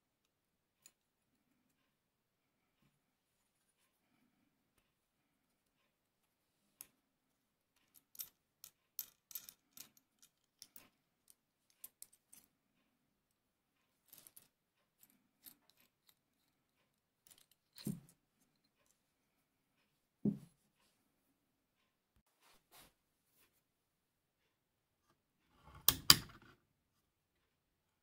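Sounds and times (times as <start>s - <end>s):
small steel parts clicking: 7.8s - 12.5s.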